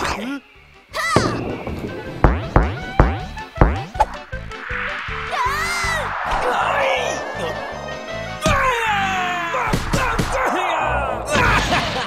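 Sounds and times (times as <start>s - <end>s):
rushing whoosh: 4.1s - 11.4s.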